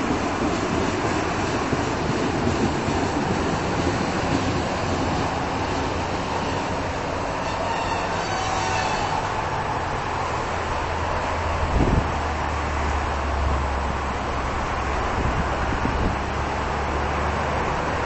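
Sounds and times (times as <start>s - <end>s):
diesel railcar rumbling: 0.0s - 18.0s
brake squeal: 7.4s - 9.4s.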